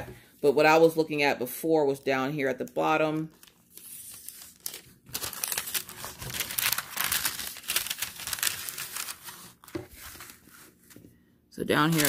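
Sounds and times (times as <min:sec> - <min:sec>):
parchment paper crinkling and rustling: 0:02.7 - 0:12.0.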